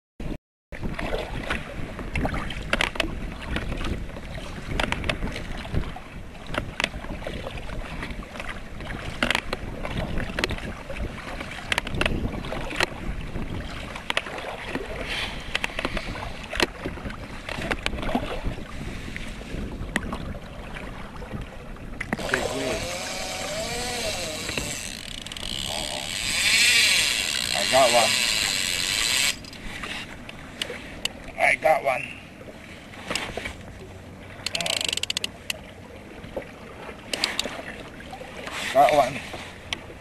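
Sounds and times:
wind buffeting microphone: 0.8 - 31.1
water slapping against kayak: 0.8 - 40.0.

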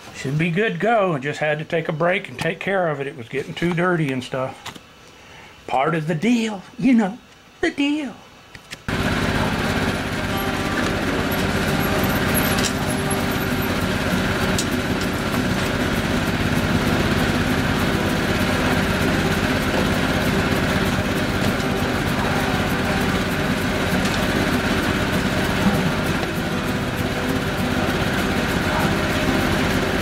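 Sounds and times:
motor humming: 8.9 - 30.0.

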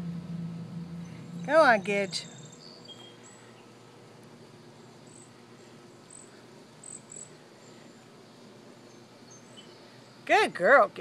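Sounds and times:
low steady hiss: 0.0 - 11.0
high-pitched insect chirps: 6.1 - 7.3.

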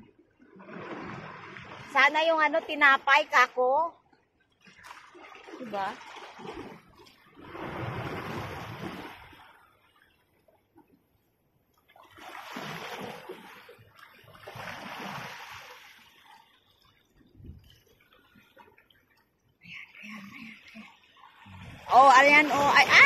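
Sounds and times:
waves splashing over rocks: 21.6 - 23.0.

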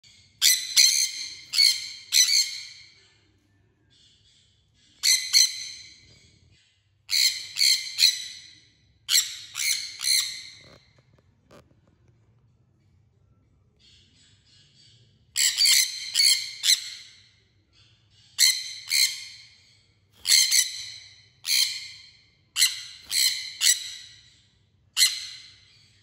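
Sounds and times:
parrots screeching: 0.4 - 2.8, 5.0 - 6.0, 7.1 - 10.8, 15.4 - 17.1, 18.4 - 19.5, 20.2 - 24.2, 25.0 - 25.7.

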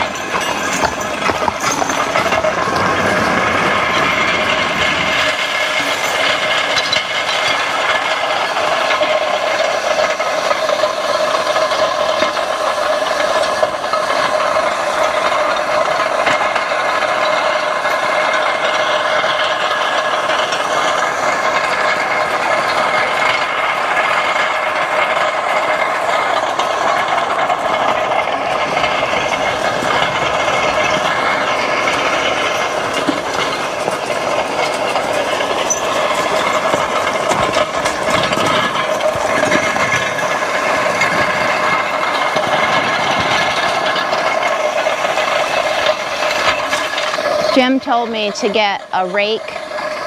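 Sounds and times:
metal roller rattling on gravel: 0.0 - 50.0.

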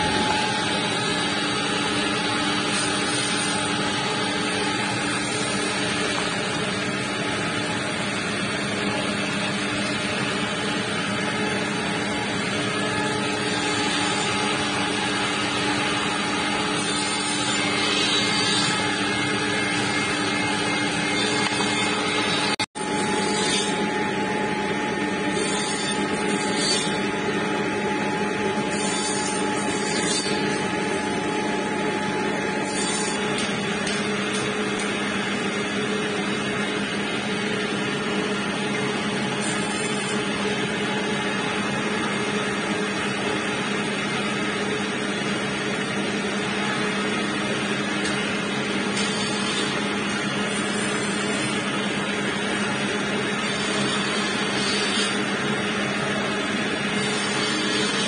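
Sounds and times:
woodworking machine motor hum: 0.0 - 58.0.

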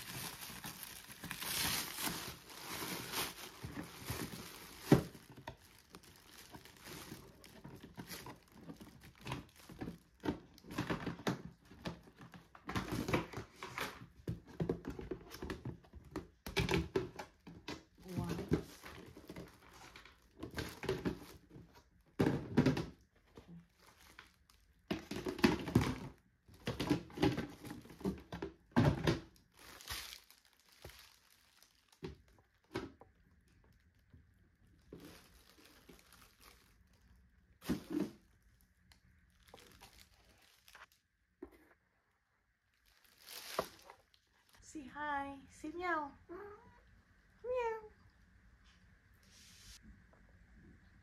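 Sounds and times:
plastic wrapping rustling: 0.0 - 41.2, 42.7 - 44.7
plastic boxes knocking: 22.2 - 23.0.

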